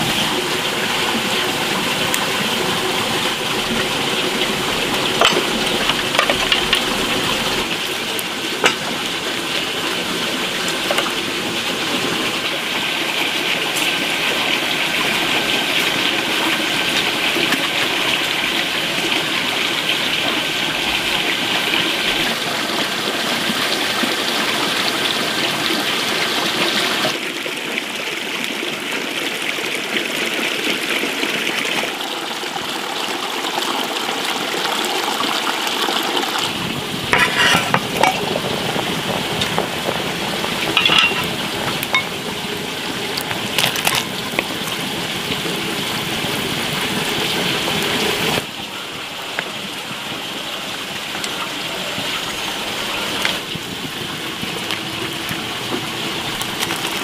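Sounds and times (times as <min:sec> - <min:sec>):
tap water pouring into basin: 0:00.0 - 0:57.0
wood fire crackling: 0:00.3 - 0:19.1, 0:36.4 - 0:57.0
soup boiling: 0:01.1 - 0:22.3, 0:36.4 - 0:57.0
pot clinks: 0:05.2 - 0:06.8, 0:08.6 - 0:09.0, 0:37.1 - 0:38.3, 0:40.8 - 0:42.2.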